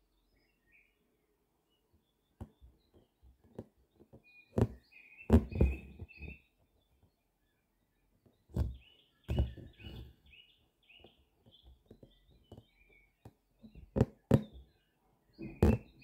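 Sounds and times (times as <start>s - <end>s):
birds chirping: 0.0s - 16.0s
needle and thread through fabric: 2.4s - 6.6s, 8.4s - 10.3s, 11.0s - 14.7s, 15.4s - 16.0s.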